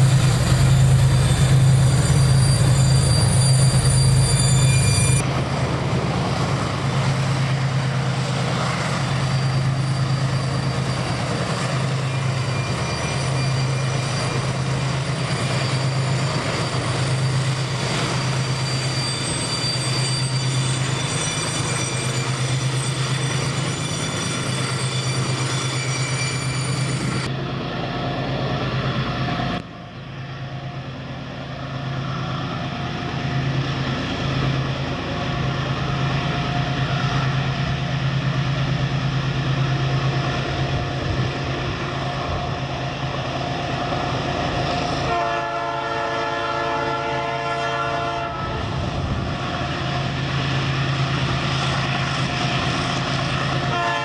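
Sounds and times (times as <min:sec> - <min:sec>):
locomotive engine drone: 0:00.0 - 0:54.0
train rolling by: 0:00.0 - 0:54.0
multi-tone air horn: 0:45.1 - 0:48.6, 0:53.7 - 0:54.0.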